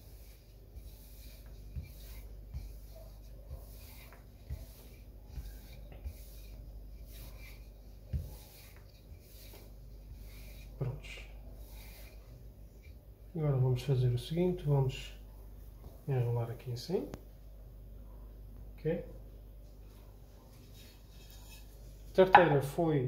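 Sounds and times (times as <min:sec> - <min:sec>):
rolling pin rubbing on dough: 0:00.0 - 0:15.0, 0:20.5 - 0:22.4.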